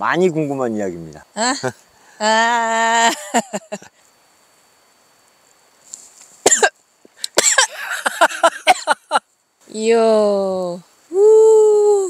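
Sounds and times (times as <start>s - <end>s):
woman coughing: 6.4s - 6.7s.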